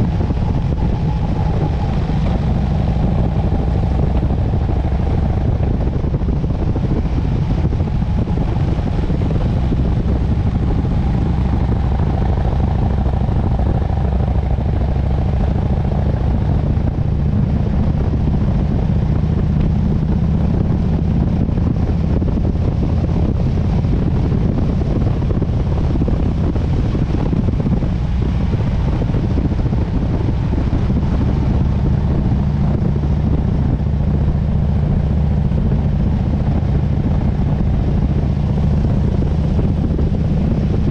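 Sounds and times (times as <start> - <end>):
motorcycle engine cruising: 0.0 - 40.9
wind and road noise: 0.0 - 40.9.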